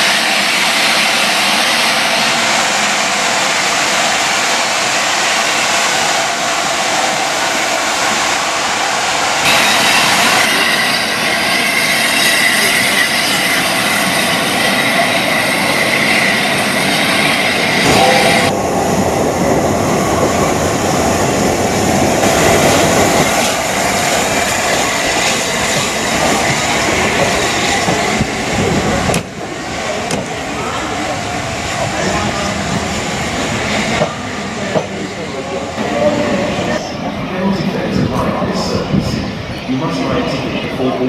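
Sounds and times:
train wheels rumbling on rail: 0:00.0 - 0:41.0
high thin wheel squeal: 0:09.5 - 0:18.5.

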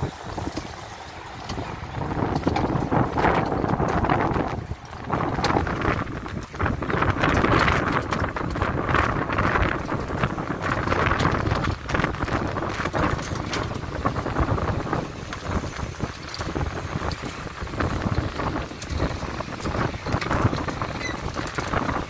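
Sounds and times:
river rushing: 0:00.0 - 0:05.2
van rumbling over wooden bridge: 0:00.0 - 0:22.0
wind buffeting microphone: 0:00.0 - 0:22.0.

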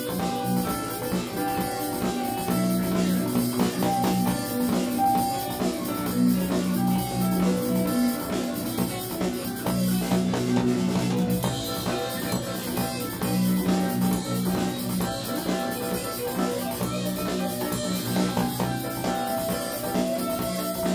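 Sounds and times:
bass line: 0:00.0 - 0:20.9
drum beat: 0:00.0 - 0:20.9
live band playing: 0:00.0 - 0:20.9.

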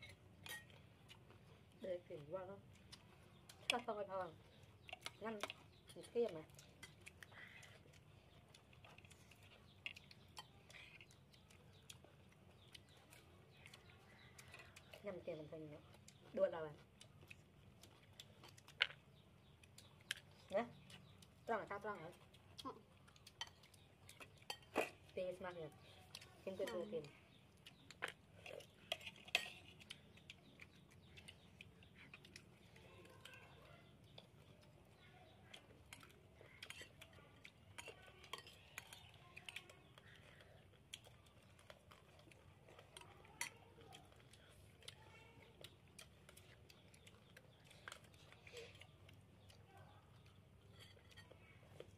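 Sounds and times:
spoons clinking on ceramic plates: 0:00.0 - 0:00.8, 0:24.4 - 0:25.0, 0:28.9 - 0:29.8.

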